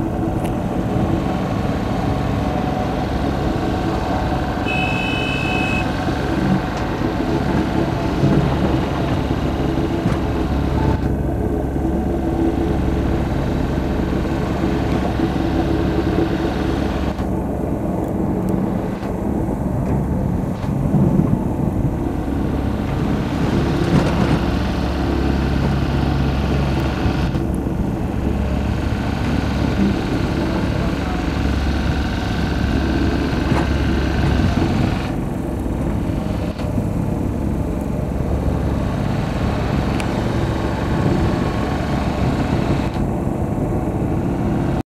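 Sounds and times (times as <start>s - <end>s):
excavator diesel engine running: 0.0s - 44.8s
thin whine: 0.9s - 6.9s.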